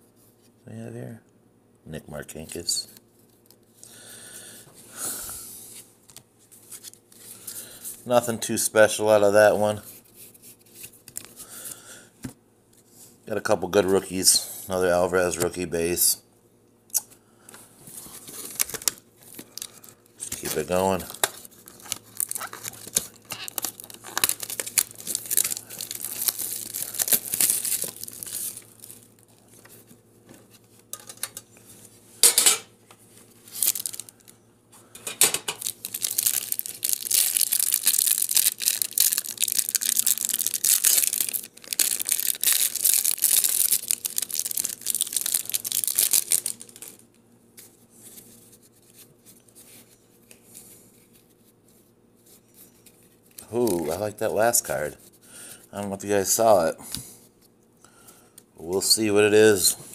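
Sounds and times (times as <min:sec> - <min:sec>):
cellophane crinkling and tearing: 0:17.9 - 0:29.9, 0:33.3 - 0:34.4, 0:35.4 - 0:50.4, 0:52.6 - 0:55.2.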